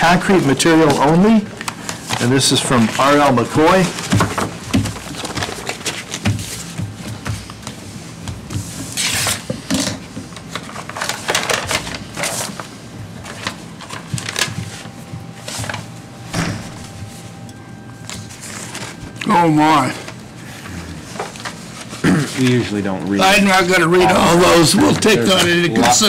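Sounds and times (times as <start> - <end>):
paper rustling and crinkling: 0.2 - 17.3, 18.0 - 20.3, 21.0 - 26.0.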